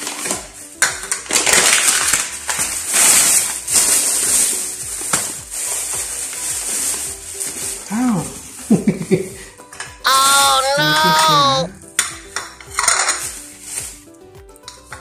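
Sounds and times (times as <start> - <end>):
plastic bag rustling and crinkling: 0.0 - 9.4, 12.7 - 14.1
paper bag crackling: 1.2 - 8.8.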